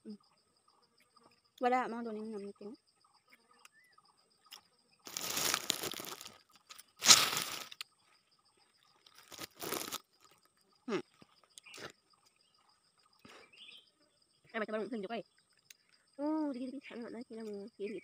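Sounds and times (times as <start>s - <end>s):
high insect trill: 0.0s - 18.0s
crunchy chewing: 4.5s - 8.0s, 8.6s - 13.3s.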